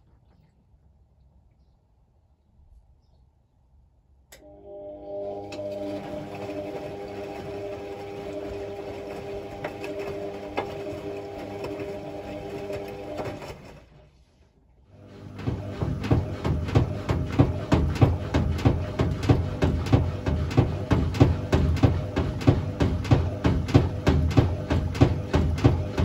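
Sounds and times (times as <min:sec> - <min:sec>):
washing machine motor humming: 0:04.3 - 0:14.0, 0:14.9 - 0:26.0
laundry sloshing knocks in drum: 0:15.3 - 0:26.0.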